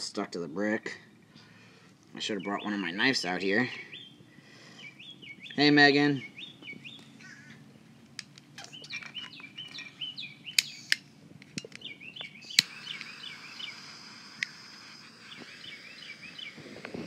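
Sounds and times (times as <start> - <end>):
small birds chirping: 0.5 - 17.0
sharp clicks: 8.0 - 15.6
steady hiss: 12.2 - 17.0.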